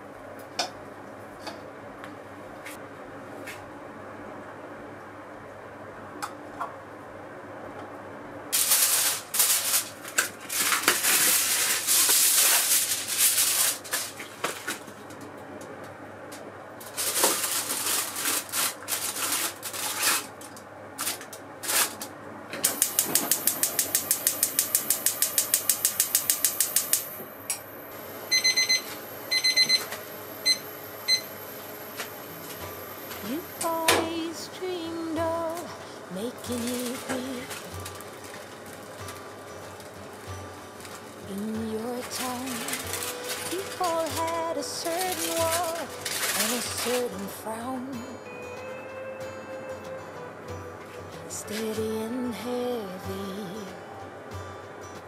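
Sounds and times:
aluminium foil crinkling: 0:08.6 - 0:15.1, 0:16.8 - 0:22.1, 0:35.4 - 0:47.5
short electronic beeps: 0:28.3 - 0:31.3.

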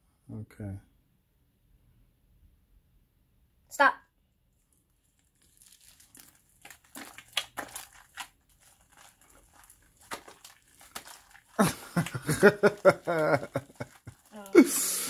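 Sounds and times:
slime crackling and squelching: 0:04.6 - 0:15.0.

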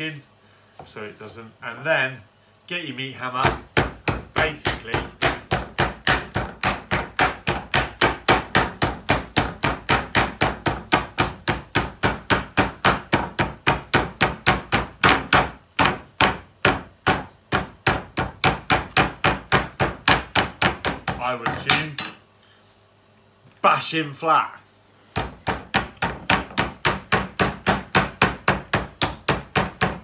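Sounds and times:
meat hammer pounding on board: 0:03.4 - 0:22.1, 0:25.1 - 0:30.0.

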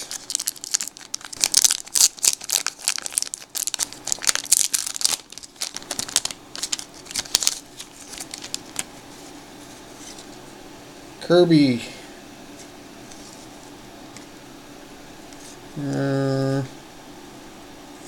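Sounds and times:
foil wrapper crinkling: 0:00.0 - 0:09.2
faint steady hum: 0:00.0 - 0:18.0.

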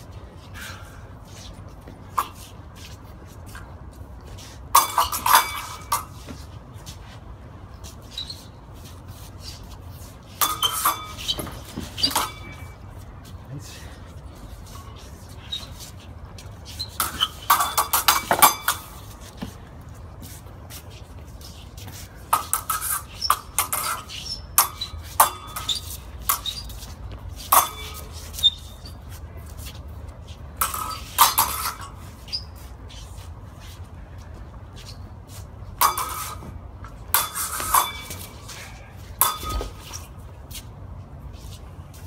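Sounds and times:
steel swords clashing: 0:10.4 - 0:12.9, 0:16.8 - 0:19.2, 0:22.4 - 0:26.7, 0:27.4 - 0:29.0, 0:30.6 - 0:32.2, 0:35.8 - 0:36.5, 0:37.1 - 0:40.2.

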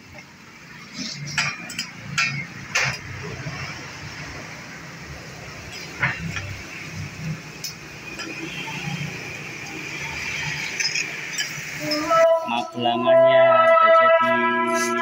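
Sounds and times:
background hiss and murmur: 0:00.0 - 0:14.0.

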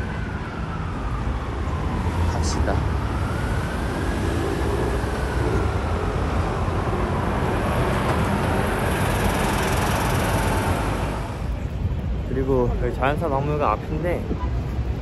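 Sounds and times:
heavy road traffic rumble: 0:00.0 - 0:15.0.

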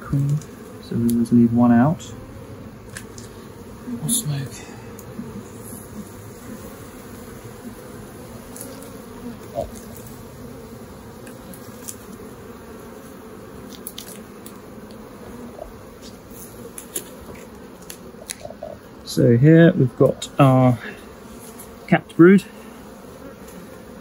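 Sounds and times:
bees buzzing: 0:00.0 - 0:24.0
faint clicks of hive frames: 0:00.1 - 0:01.5, 0:02.8 - 0:03.6, 0:04.8 - 0:05.9, 0:08.3 - 0:10.3, 0:11.0 - 0:12.8, 0:13.4 - 0:19.1, 0:20.1 - 0:24.0.

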